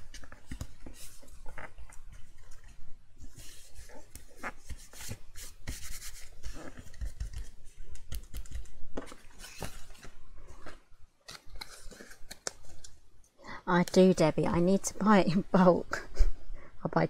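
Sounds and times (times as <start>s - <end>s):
paper rubbing and rustling: 0.0s - 10.7s.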